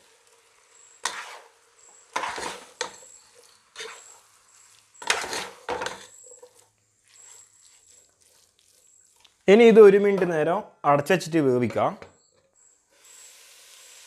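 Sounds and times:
spatula scraping a pot: 0.3s - 9.4s.

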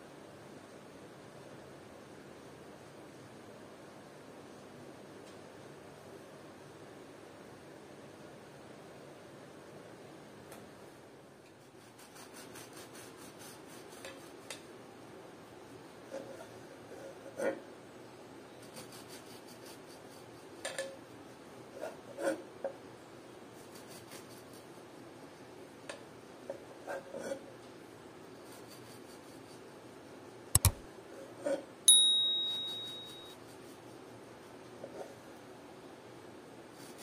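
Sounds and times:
sharp clicks: 30.6s - 30.8s
high ringing ting: 31.9s - 33.4s.

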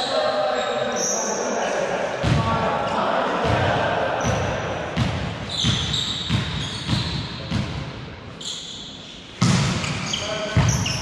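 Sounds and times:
sneaker squeaks: 0.0s - 1.5s, 5.4s - 7.7s, 8.3s - 11.0s
ball bouncing on gym floor: 5.0s - 7.9s, 9.4s - 11.0s.

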